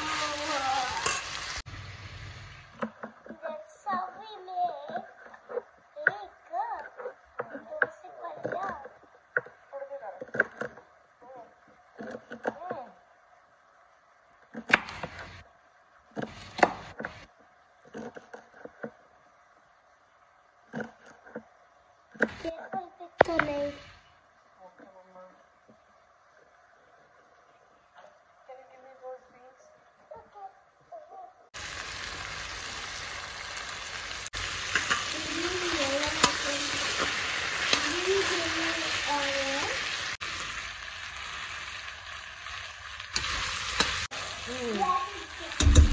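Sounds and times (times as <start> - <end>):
vegetables sizzling in a pan: 0.0 - 45.9
spoon knocking against pan: 45.6 - 45.9.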